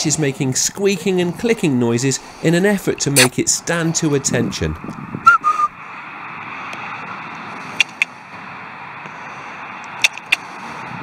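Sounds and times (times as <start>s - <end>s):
steady outdoor hiss: 0.0s - 11.0s
sharp clicks: 7.8s - 8.1s, 9.8s - 10.5s.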